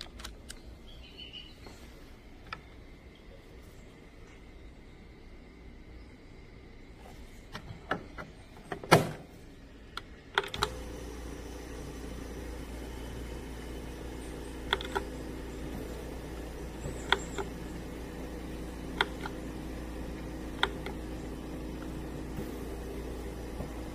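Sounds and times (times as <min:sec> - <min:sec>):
compressor humming: 0:00.0 - 0:23.9
sharp clicks: 0:14.5 - 0:16.1, 0:16.8 - 0:17.6, 0:18.9 - 0:19.4, 0:20.5 - 0:21.0.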